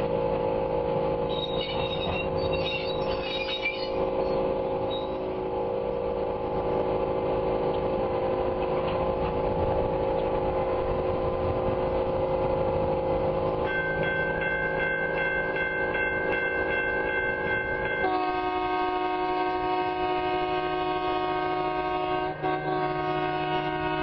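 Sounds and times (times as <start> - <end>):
engine droning: 0.0 - 24.0
short high squeaks: 1.3 - 5.3.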